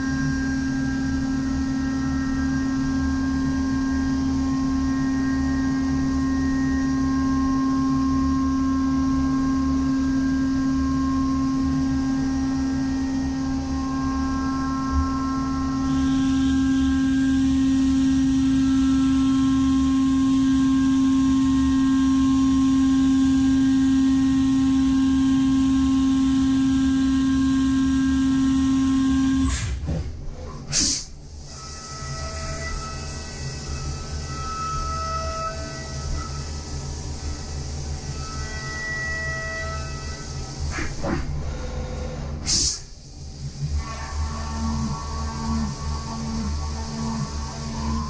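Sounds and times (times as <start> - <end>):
hiss of cutting and coolant: 30.6 - 32.0, 35.6 - 38.8, 39.6 - 48.0.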